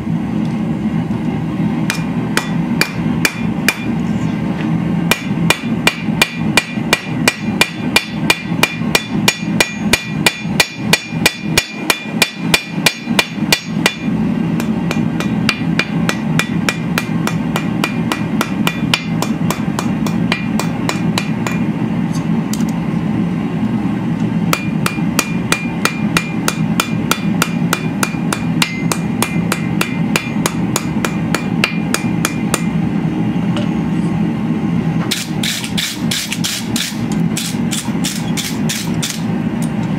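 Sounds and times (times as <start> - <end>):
steady low hum: 0.0 - 39.9
hammer striking steel on anvil: 1.9 - 4.0, 5.1 - 21.7, 24.5 - 32.8, 35.1 - 39.3.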